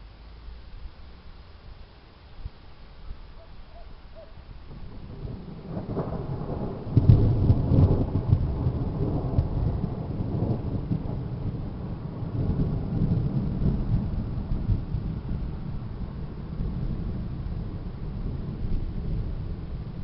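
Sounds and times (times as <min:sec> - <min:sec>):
thunder rumbling: 0:04.1 - 0:20.0.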